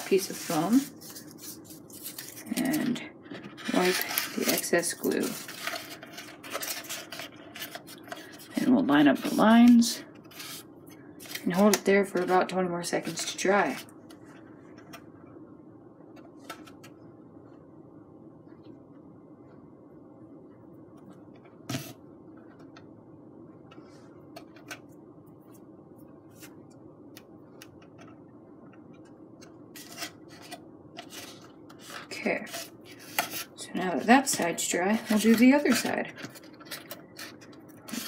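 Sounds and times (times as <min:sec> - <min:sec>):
faint room hum: 0:00.0 - 0:38.0.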